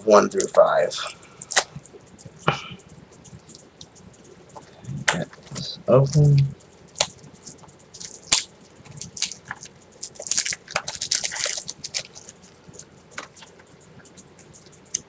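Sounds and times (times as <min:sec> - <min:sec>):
plastic rustling: 0:07.0 - 0:15.0.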